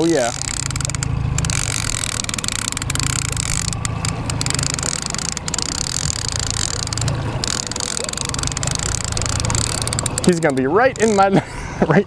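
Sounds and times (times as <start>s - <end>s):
fishing reel clicking: 0.0s - 11.3s
low rumble: 0.0s - 11.6s.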